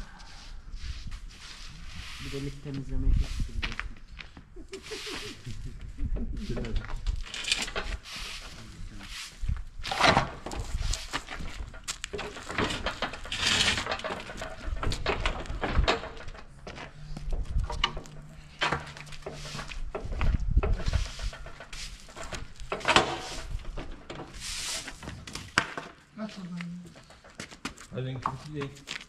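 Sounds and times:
tools knocking and scraping: 4.7 - 8.8, 9.8 - 26.1, 26.9 - 29.0.

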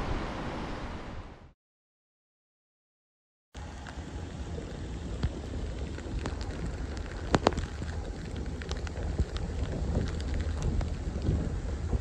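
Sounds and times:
light rain: 3.6 - 12.0
raindrops ticking: 3.6 - 12.0
wind on microphone: 3.6 - 12.0.

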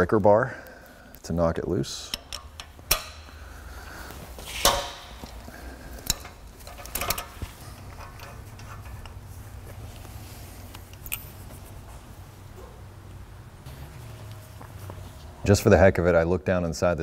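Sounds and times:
steady low hum: 0.0 - 17.0
metallic clicks and knocks: 2.0 - 3.3, 6.0 - 9.2.

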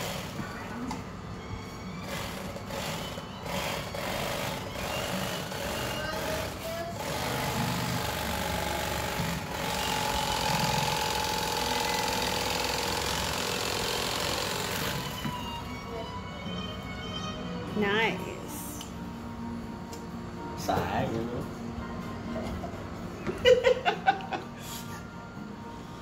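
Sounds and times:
electric fillet knife buzzing: 2.0 - 15.5.

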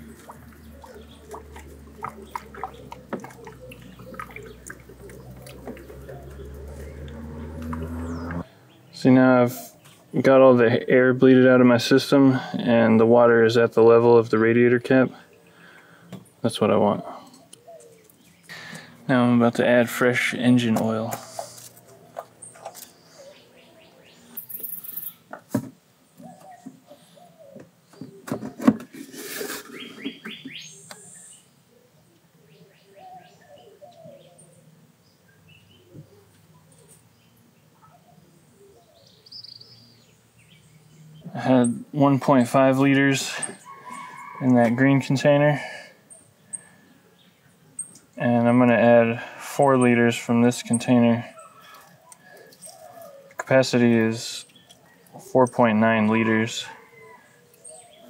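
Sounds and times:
water gurgling and plopping: 0.0 - 8.4
birds chirping: 0.0 - 58.0.

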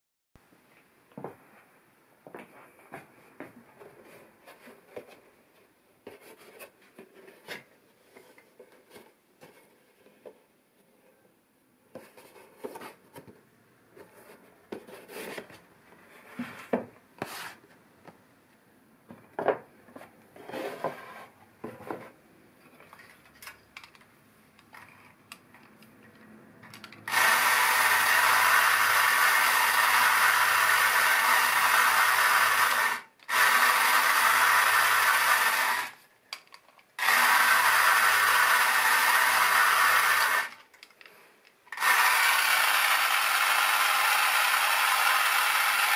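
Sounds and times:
toy motor grinding whir: 26.8 - 36.0, 37.0 - 40.7, 41.7 - 45.9.

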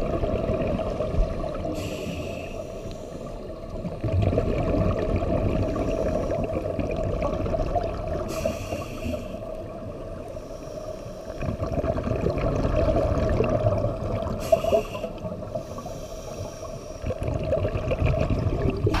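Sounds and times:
exhaled bubbles rushing: 0.0 - 1.8, 3.8 - 8.4, 11.4 - 14.6, 17.0 - 19.0
hissing regulator inhalations: 1.8 - 3.5, 8.3 - 9.6, 10.3 - 11.4, 14.4 - 17.2.

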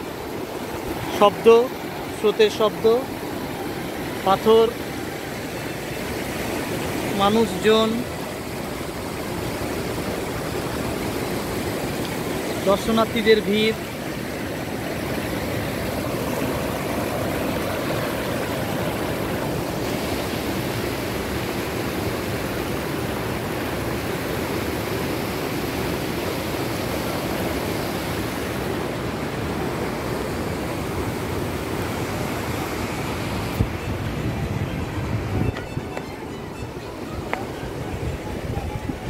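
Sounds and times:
river rushing over boulders: 0.0 - 39.0.

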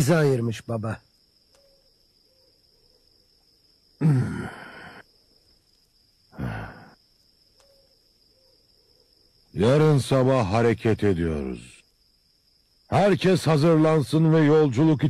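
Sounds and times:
breathy exhale: 4.0 - 5.0, 6.4 - 7.0
man sighing: 4.0 - 5.0, 6.3 - 7.0.

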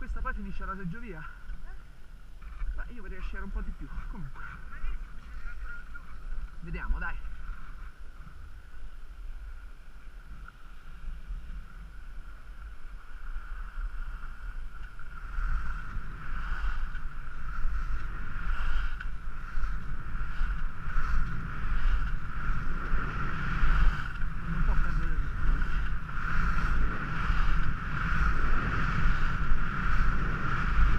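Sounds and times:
wind rumbling on microphone: 0.0 - 30.9
skis scraping over snow: 2.4 - 30.9
ski turn swishes: 13.4 - 30.9.

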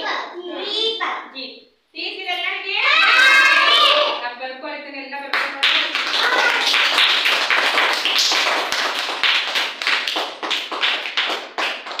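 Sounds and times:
children clapping: 5.3 - 12.0.

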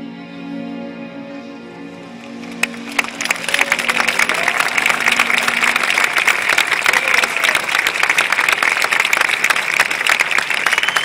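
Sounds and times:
large audience applauding: 2.3 - 11.0
scattered shouts: 3.4 - 7.8.

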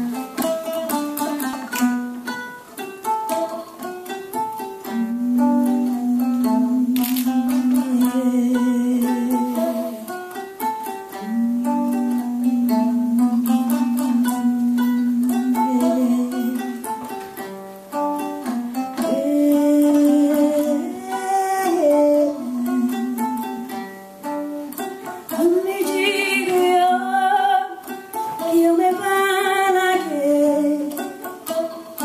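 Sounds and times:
plucked lute: 0.0 - 32.0
woman singing into a microphone: 4.8 - 10.2, 11.1 - 17.2, 19.0 - 23.9, 25.3 - 31.6.

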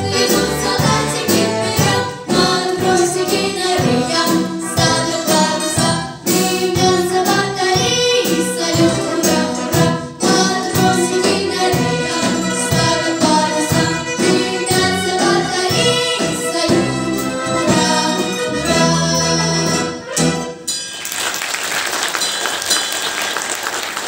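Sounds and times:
girls singing: 0.0 - 20.0
wind band with drum kit: 0.0 - 20.8
audience applause: 21.0 - 24.0.

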